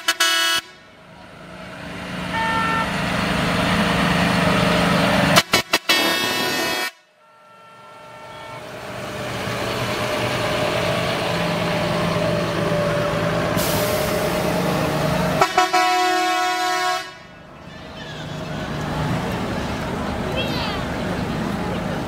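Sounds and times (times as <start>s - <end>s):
truck horn: 0.0s - 1.0s, 2.2s - 3.3s, 5.3s - 8.9s, 15.3s - 18.4s
truck engine running: 0.8s - 6.8s, 8.0s - 22.0s.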